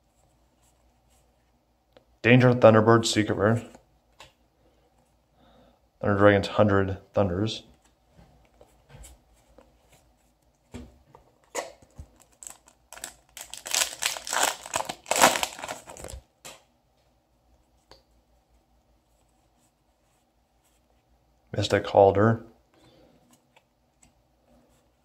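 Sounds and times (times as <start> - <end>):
foil pack tearing and crinkling: 12.2 - 16.2.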